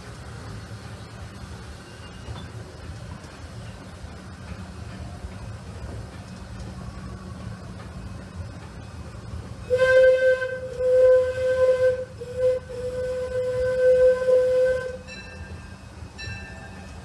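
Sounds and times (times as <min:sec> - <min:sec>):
train rumbling on track: 0:00.0 - 0:17.0
steam locomotive whistle: 0:09.6 - 0:15.3.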